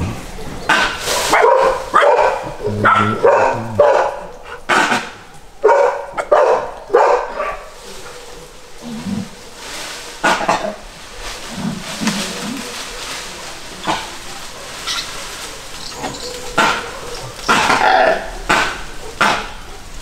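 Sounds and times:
dogs barking: 0.0s - 8.6s, 13.8s - 20.0s.

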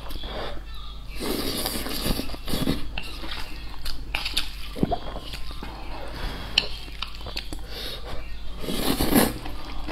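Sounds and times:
wet chewing and mouth smacks: 6.6s - 7.6s
noodles being slurped: 8.6s - 9.9s.

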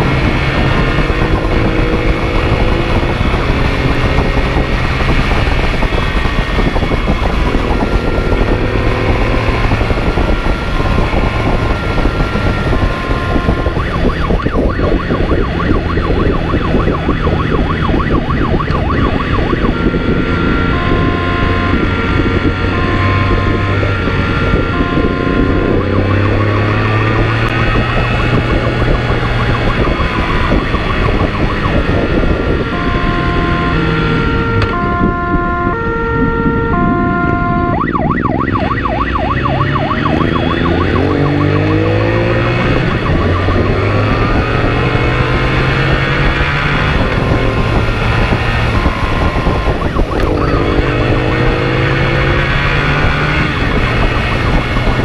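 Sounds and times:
motorcycle engine accelerating: 0.0s - 55.0s
two-tone siren: 0.0s - 55.0s.

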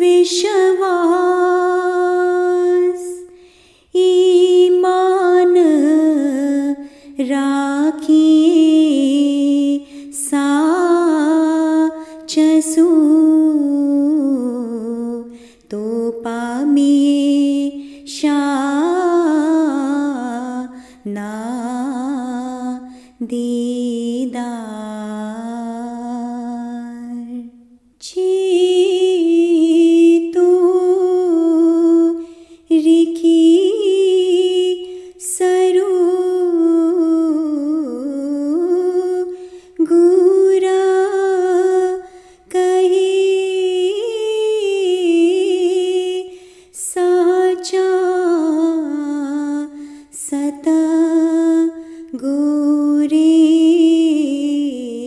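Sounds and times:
person chanting: 0.0s - 3.4s.

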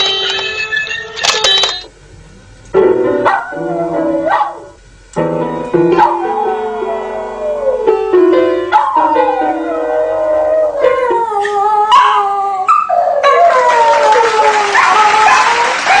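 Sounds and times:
dog howling: 6.0s - 7.9s, 8.7s - 16.0s.

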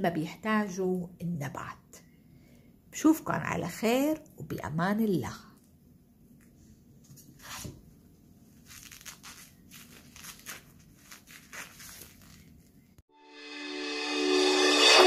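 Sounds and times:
rustling and crinkling handling noises: 6.3s - 13.0s
music: 13.1s - 15.0s.

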